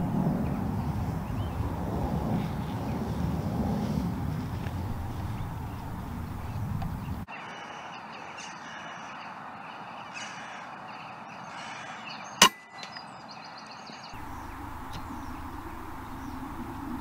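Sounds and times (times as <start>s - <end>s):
faint bird calls: 3.8s - 17.0s.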